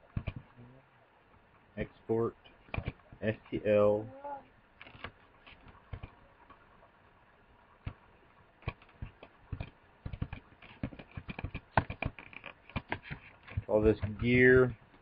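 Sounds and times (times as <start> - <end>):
computer keyboard and mouse clicks: 0.1 - 0.5, 2.7 - 3.0, 4.8 - 6.2, 8.6 - 14.2.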